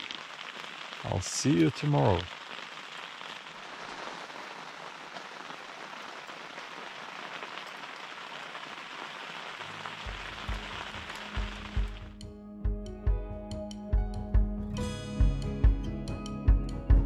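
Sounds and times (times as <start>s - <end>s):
rain on a tent: 0.0s - 12.2s
low music: 11.4s - 17.0s.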